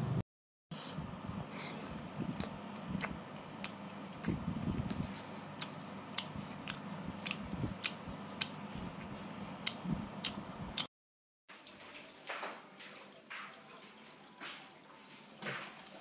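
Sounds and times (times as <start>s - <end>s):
person chewing food: 2.3s - 10.9s.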